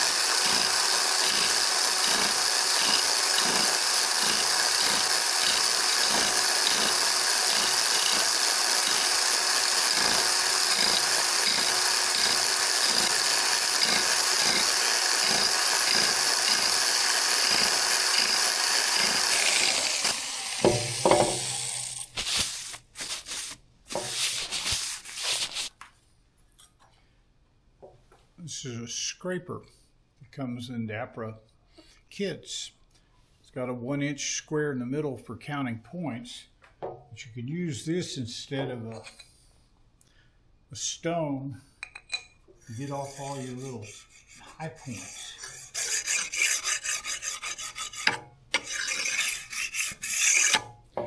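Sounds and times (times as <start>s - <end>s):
power scraper scraping metal: 0.0s - 22.8s, 42.7s - 50.8s
tool knocks and clatter: 20.6s - 21.5s.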